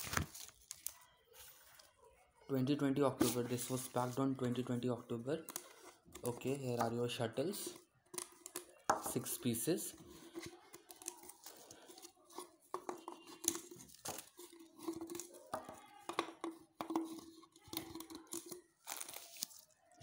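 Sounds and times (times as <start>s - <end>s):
packaging crinkling: 0.0s - 1.9s, 17.6s - 20.0s.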